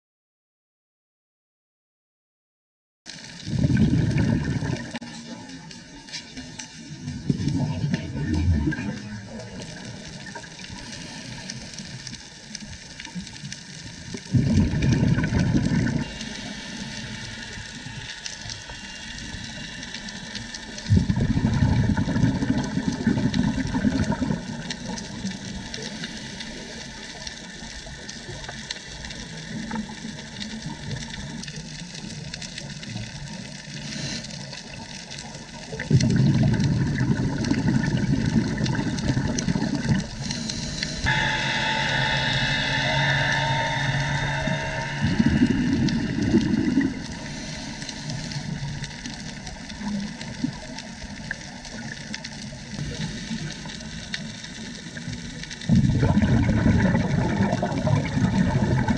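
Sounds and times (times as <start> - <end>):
faint crackling: 3.1 - 58.9
diver regulator bubbles rushing: 3.4 - 5.2, 7.0 - 11.0, 14.1 - 16.7, 20.8 - 25.8, 35.3 - 41.0, 45.0 - 58.9
underwater hiss: 8.6 - 58.9.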